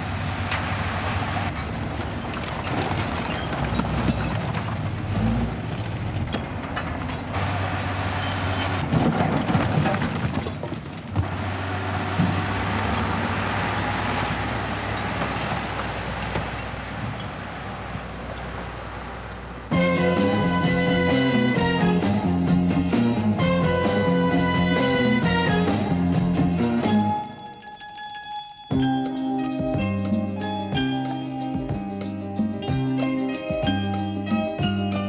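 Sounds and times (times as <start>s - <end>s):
rubbish clattering down slope: 0.4s - 18.1s
diesel machine droning: 11.2s - 27.4s.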